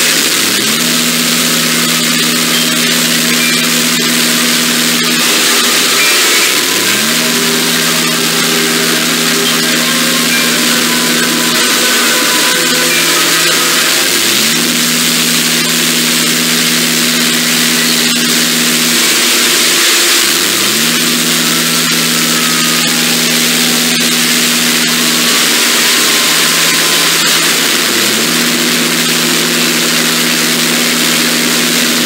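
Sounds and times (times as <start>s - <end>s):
alarm chord swooping up: 0.4s - 32.0s.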